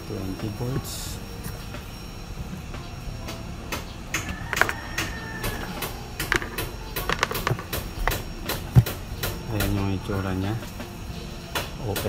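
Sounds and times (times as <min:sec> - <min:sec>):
multimeter and probe leads clicking: 0:04.1 - 0:09.8.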